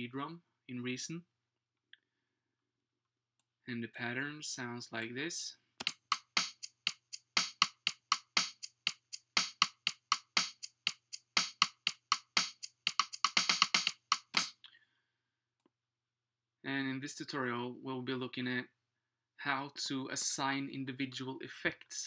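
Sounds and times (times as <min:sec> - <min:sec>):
drum machine beat: 0:05.8 - 0:14.6.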